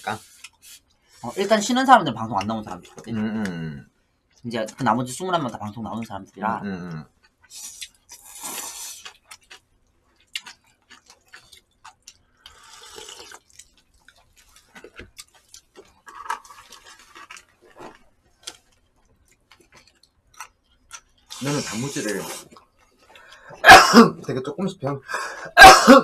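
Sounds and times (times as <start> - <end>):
mouth chewing clicks and smacks: 7.2 - 21.4
slurping noodles: 7.5 - 9.1, 12.5 - 13.5, 21.3 - 22.6.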